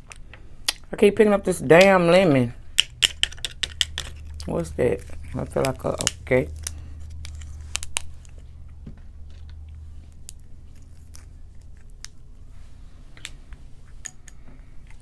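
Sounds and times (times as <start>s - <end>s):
low steady hum: 0.0s - 15.0s
nails clicking on shell: 2.7s - 4.6s.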